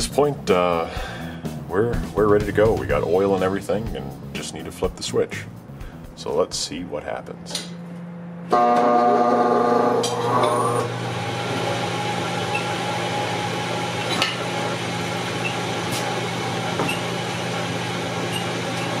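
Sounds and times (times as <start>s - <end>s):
electric motor running: 8.6s - 19.0s.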